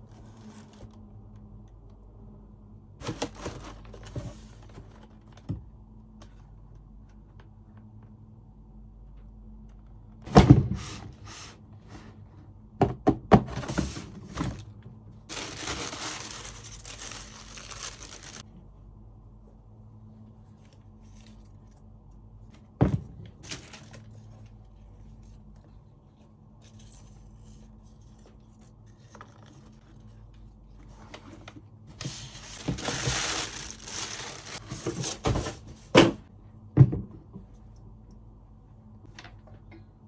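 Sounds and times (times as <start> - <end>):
paper packaging rustling: 3.0 - 5.4, 15.3 - 18.5, 23.3 - 25.3, 30.8 - 35.6.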